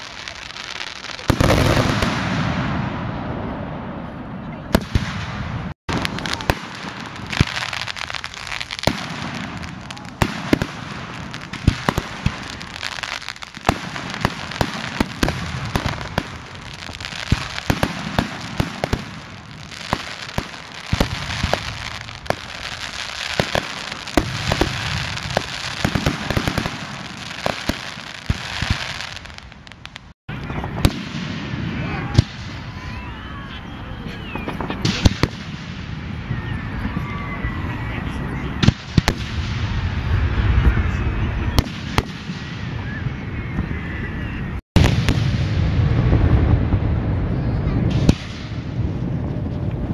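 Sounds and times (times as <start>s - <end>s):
fireworks bursting: 0.0s - 49.9s.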